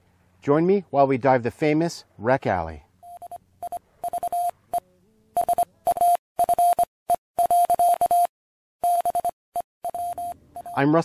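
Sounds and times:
stuttering electronic beep: 3.0 - 4.8, 5.4 - 10.9.

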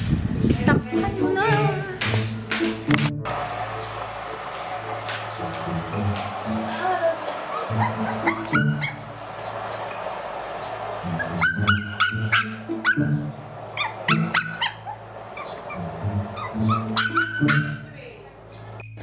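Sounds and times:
quiet background music: 0.6 - 19.0
puppies yipping and barking: 7.6 - 9.6, 10.5 - 17.9.

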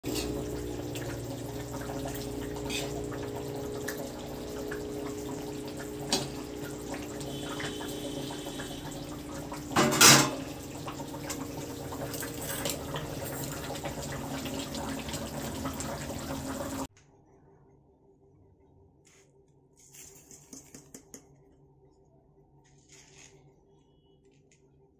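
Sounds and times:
curry bubbling in a pan: 0.1 - 16.9.

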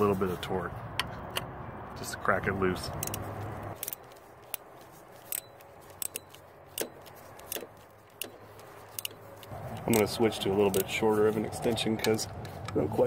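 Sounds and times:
ratchet clicking: 3.8 - 11.0.

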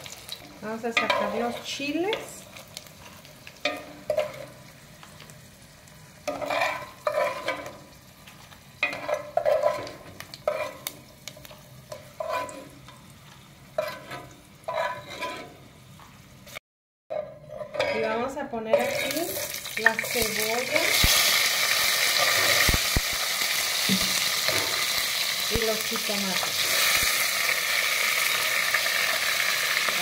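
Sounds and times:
oil sizzling: 0.0 - 16.6, 18.7 - 30.0
spoon scraping a clay pot: 3.7 - 4.5, 6.3 - 7.8, 8.8 - 10.9, 11.9 - 12.7, 13.8 - 15.6, 17.1 - 19.3.

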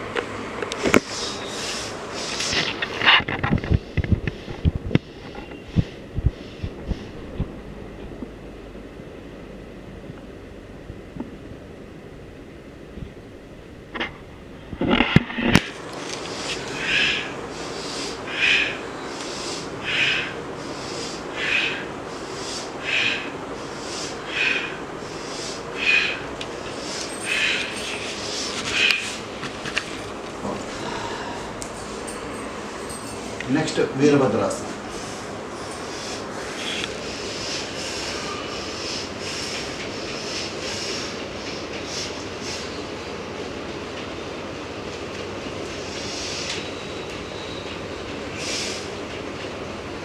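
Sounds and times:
steady rumbling: 0.0 - 46.2
pulsing hiss: 0.7 - 7.6, 15.0 - 43.4, 45.6 - 49.2
faint breaths: 16.2 - 33.6, 34.4 - 43.0.

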